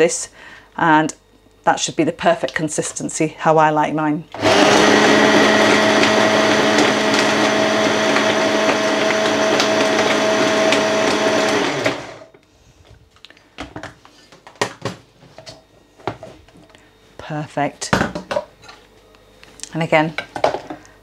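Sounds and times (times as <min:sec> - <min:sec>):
hand blender motor running: 0:04.4 - 0:12.3.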